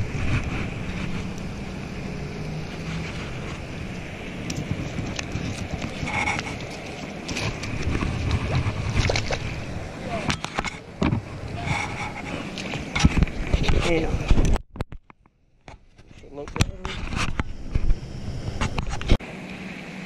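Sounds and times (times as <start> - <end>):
wind buffeting microphone: 0.0 - 14.9.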